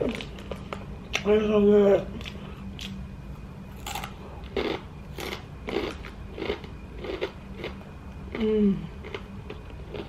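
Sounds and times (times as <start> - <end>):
person chewing food: 3.8 - 8.4, 9.0 - 10.0
woman humming: 8.3 - 9.1.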